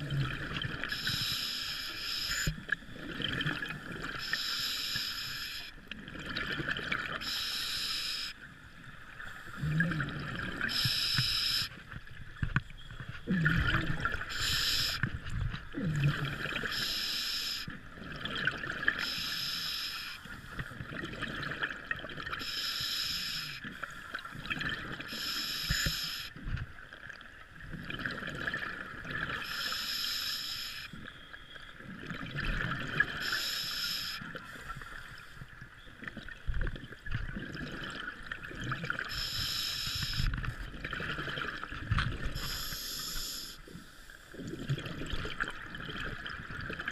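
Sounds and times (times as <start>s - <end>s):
scuba regulator inhale hiss: 0.9s - 2.5s, 4.2s - 5.7s, 7.2s - 8.4s, 10.7s - 11.7s, 14.3s - 15.0s, 16.7s - 17.7s, 19.0s - 20.2s, 22.4s - 23.6s, 25.1s - 26.3s, 29.4s - 30.9s, 33.2s - 34.9s, 39.1s - 40.3s, 42.4s - 44.0s
bubbling exhalations: 13.3s - 14.3s.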